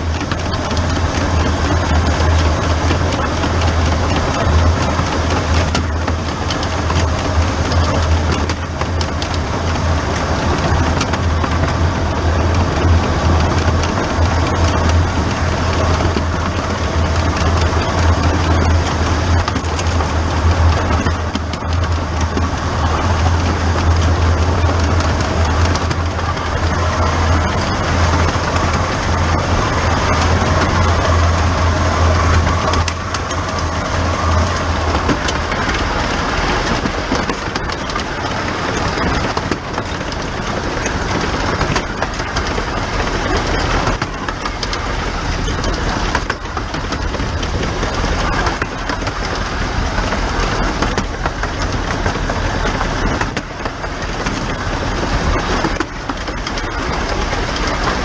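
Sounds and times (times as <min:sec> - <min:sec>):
steam locomotive running noise: 0:00.0 - 0:58.0
wheels clicking over rail joints: 0:00.0 - 0:58.0
low hum: 0:11.4 - 0:39.2.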